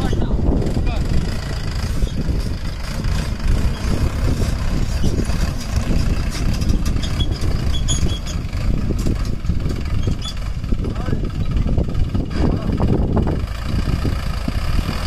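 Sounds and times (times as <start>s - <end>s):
tractor diesel engine rumbling: 0.0s - 15.0s.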